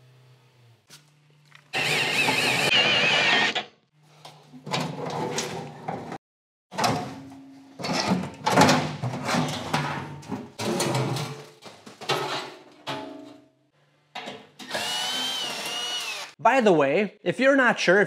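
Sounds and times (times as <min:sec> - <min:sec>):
cordless drill whining: 0:01.7 - 0:03.6, 0:14.7 - 0:16.4.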